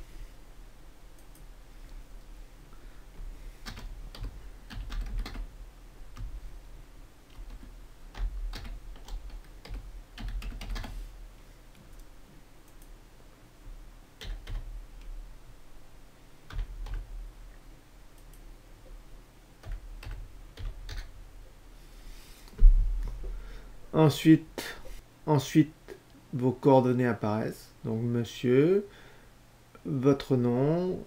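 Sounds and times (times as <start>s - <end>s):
computer keyboard typing: 3.6s - 5.5s, 7.3s - 11.0s, 14.2s - 14.7s, 16.5s - 17.1s, 19.6s - 21.1s.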